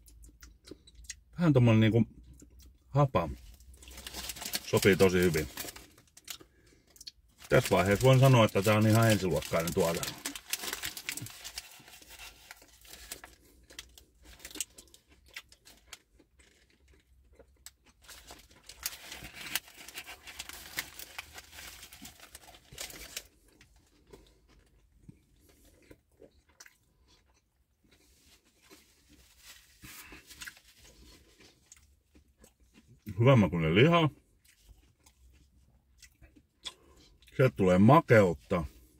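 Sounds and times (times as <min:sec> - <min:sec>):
close-up chewing: 0:03.4 - 0:33.2, 0:34.1 - 0:37.4
paper wrapper rustling: 0:03.8 - 0:06.1, 0:07.4 - 0:14.9, 0:18.0 - 0:23.3, 0:28.8 - 0:31.0.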